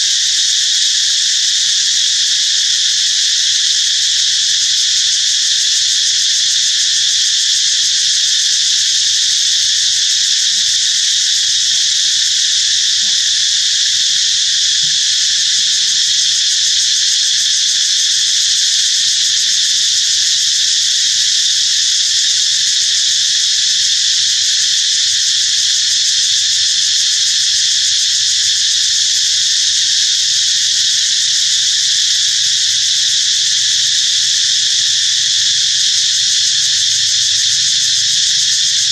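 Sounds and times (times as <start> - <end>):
insect chorus drone: 0.0 - 38.9.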